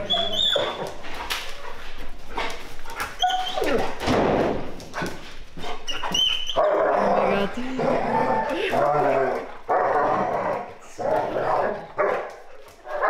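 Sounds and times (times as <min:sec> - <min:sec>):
dogs whining and yipping: 0:00.0 - 0:01.0, 0:03.2 - 0:04.0, 0:05.6 - 0:06.9.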